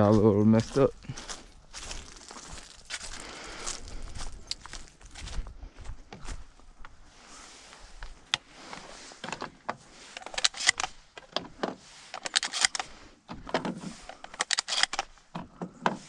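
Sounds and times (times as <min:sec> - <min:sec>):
gear being handled clicks and rattles: 0:09.2 - 0:16.0.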